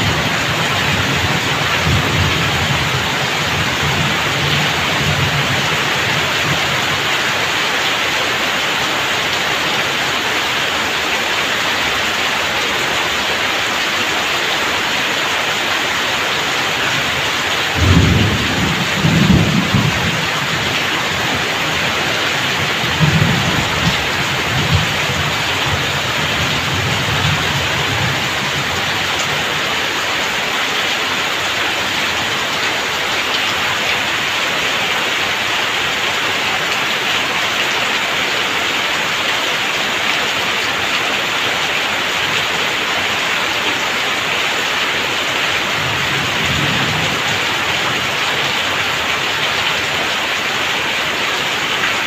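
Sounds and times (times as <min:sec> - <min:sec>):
heavy rain on a roof: 0:00.0 - 0:52.0
water streaming onto wet ground: 0:00.0 - 0:52.0
low thunder rumbling: 0:17.7 - 0:29.6.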